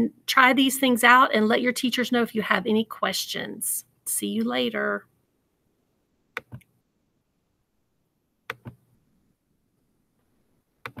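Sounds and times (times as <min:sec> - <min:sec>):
computer mouse clicking: 0:06.4 - 0:06.7, 0:08.5 - 0:08.8, 0:10.8 - 0:11.0.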